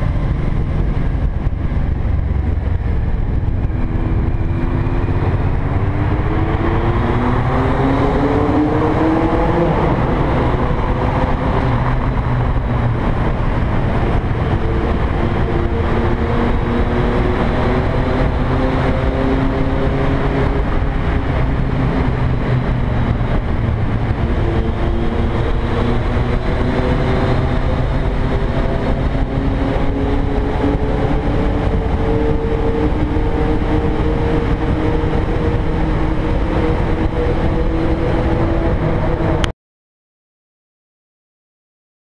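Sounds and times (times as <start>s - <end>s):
motorcycle engine running: 0.0s - 7.4s
wind and road noise rumble: 0.0s - 39.5s.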